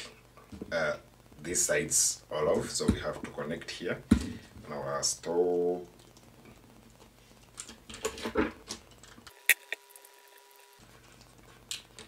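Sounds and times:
screwdriver turning screws: 9.4 - 9.8.

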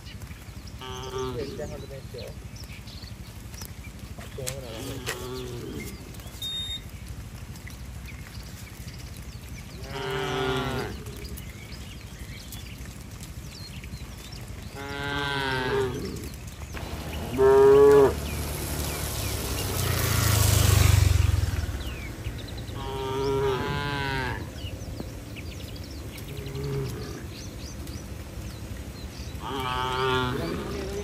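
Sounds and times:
cattle mooing: 0.8 - 1.8, 4.6 - 6.3, 9.8 - 11.4, 14.7 - 18.4, 22.8 - 24.6, 26.2 - 27.3, 29.4 - 31.0.

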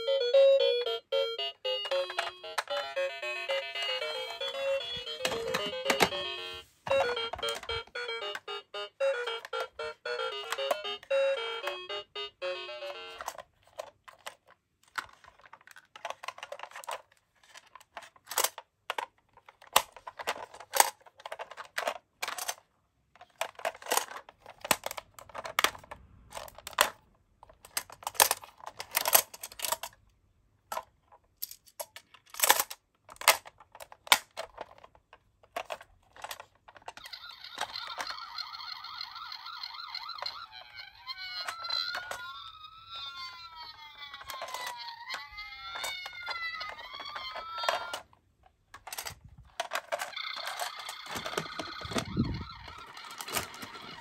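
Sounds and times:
toy siren: 0.0 - 13.4, 37.0 - 48.0, 50.0 - 54.0
plastic toy clicks and knocks: 1.7 - 8.5, 9.1 - 11.9, 12.8 - 30.0, 30.7 - 54.0.

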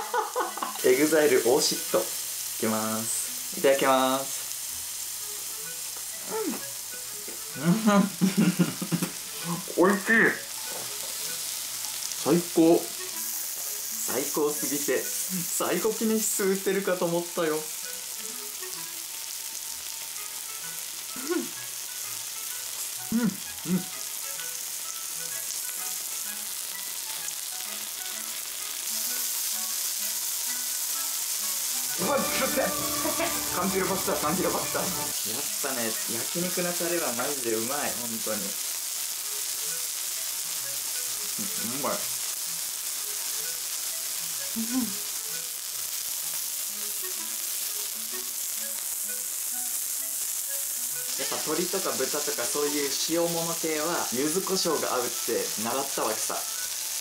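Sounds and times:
faint background music: 0.0 - 57.0
meat sizzling on grill: 0.0 - 57.0
person humming: 6.2 - 6.7, 7.5 - 9.7, 15.2 - 15.5, 21.1 - 21.6, 23.0 - 24.0, 44.6 - 45.0.

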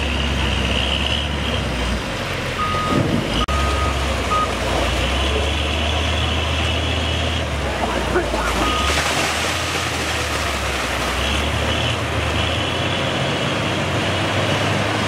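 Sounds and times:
diesel engine running: 0.0 - 15.0
reversing alarm beeping: 2.6 - 4.5.

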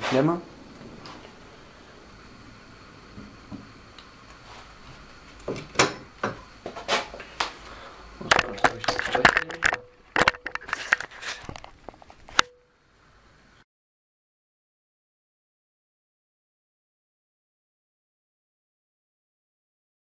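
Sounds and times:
metal tools knocking and clanking: 8.3 - 11.0.

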